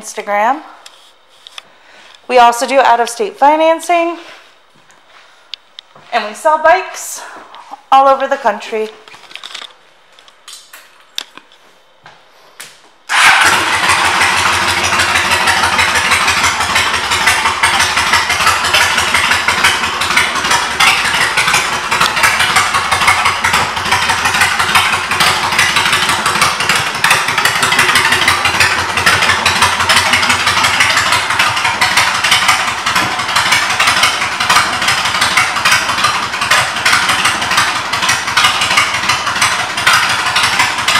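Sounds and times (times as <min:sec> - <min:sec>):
motorcycle engine idling: 0:13.2 - 0:40.9.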